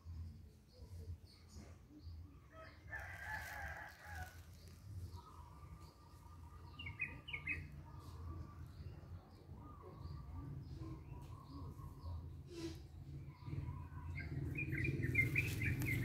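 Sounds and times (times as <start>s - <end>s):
rooster-like crow: 2.5s - 4.5s.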